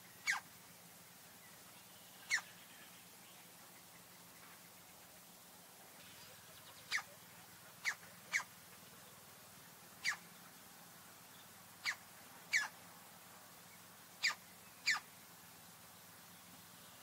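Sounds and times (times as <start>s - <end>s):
woodpecker short sharp calls: 0.2s - 0.4s, 2.2s - 2.6s, 6.9s - 7.2s, 10.0s - 10.2s, 11.8s - 12.8s, 14.2s - 15.1s.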